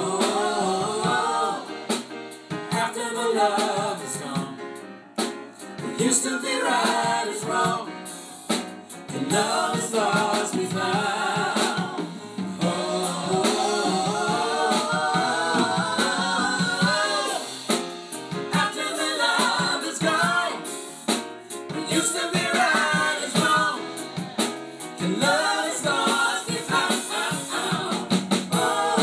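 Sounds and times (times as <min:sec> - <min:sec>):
backing vocals: 0:00.0 - 0:02.0, 0:09.1 - 0:17.8, 0:18.5 - 0:20.7, 0:21.8 - 0:29.0
drums: 0:00.0 - 0:29.0
grand piano: 0:00.0 - 0:29.0
man singing soul ballad: 0:09.2 - 0:17.4, 0:21.7 - 0:27.6.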